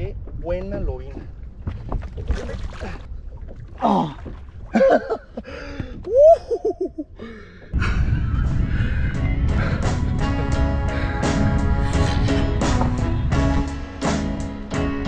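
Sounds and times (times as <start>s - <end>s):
man laughing: 4.7s - 7.2s.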